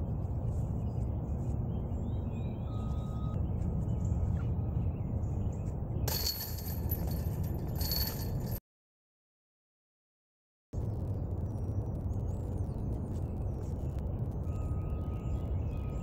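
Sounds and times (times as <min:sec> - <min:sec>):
wind rumble on microphone: 0:00.0 - 0:08.6, 0:10.8 - 0:16.0
faint bird chirps: 0:00.5 - 0:05.3, 0:11.4 - 0:16.0
metal chains jingling: 0:06.1 - 0:08.6.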